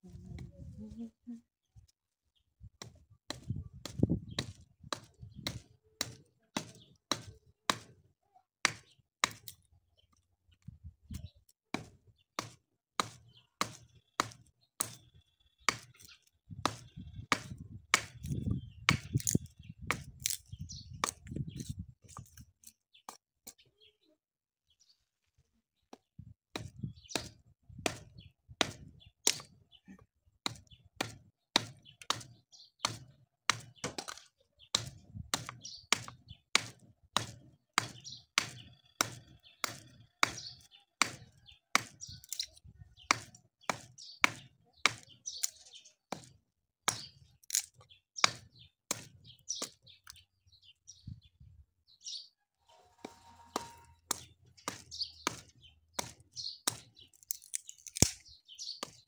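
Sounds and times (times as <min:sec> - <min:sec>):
hammer striking steel blade: 0:53.0 - 0:54.2.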